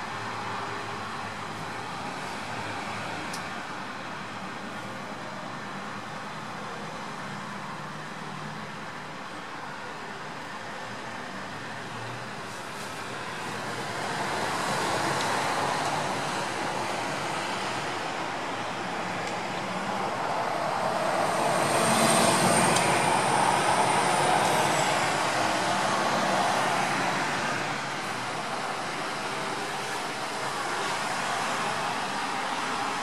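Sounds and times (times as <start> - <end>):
outdoor rushing noise: 12.8 - 33.0.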